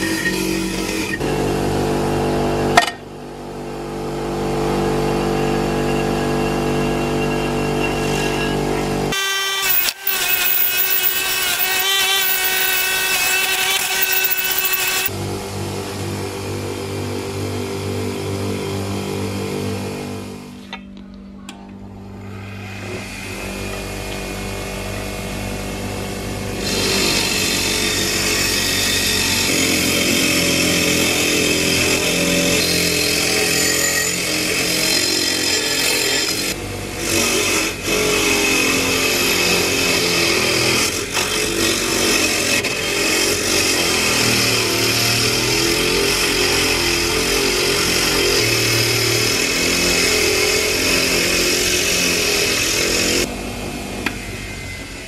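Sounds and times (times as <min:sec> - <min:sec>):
bench grinder motor running: 0:09.1 - 0:15.1
wire brush scrubbing rust off iron: 0:09.6 - 0:15.1.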